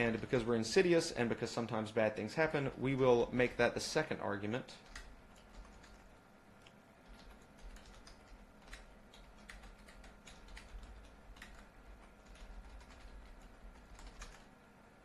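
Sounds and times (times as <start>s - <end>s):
low steady hum: 0.0s - 15.0s
typing on computer keyboard: 4.8s - 6.1s, 7.0s - 14.5s.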